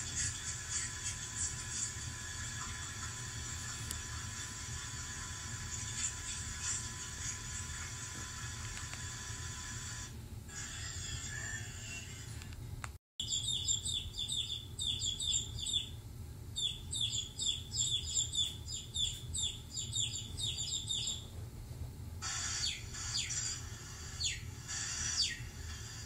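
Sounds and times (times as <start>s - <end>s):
chick peeping: 13.2s - 16.0s, 16.6s - 21.3s, 22.2s - 26.0s
harsh sweeping calls: 22.2s - 25.5s.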